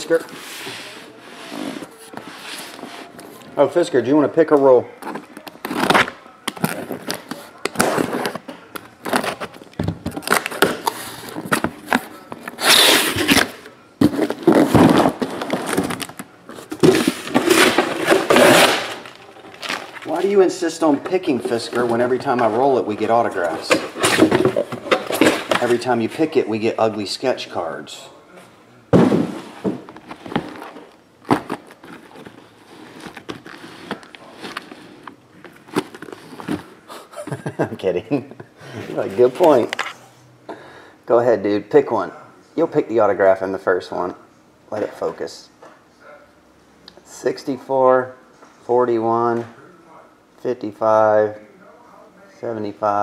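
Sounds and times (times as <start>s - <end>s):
cardboard scraping and rustling: 10.2s - 25.9s
boxes knocking: 13.2s - 20.3s, 20.9s - 25.9s, 28.9s - 32.4s.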